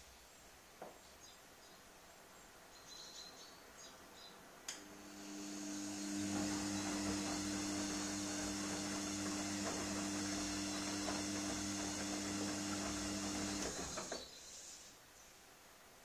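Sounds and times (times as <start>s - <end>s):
washing machine motor hum: 4.7s - 14.2s.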